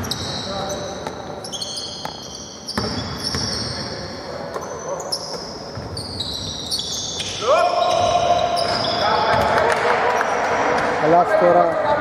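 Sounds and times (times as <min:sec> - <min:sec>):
shoe squeaks: 0:00.0 - 0:09.4
basketball bouncing on court: 0:02.0 - 0:03.8, 0:05.3 - 0:06.5, 0:07.8 - 0:09.8.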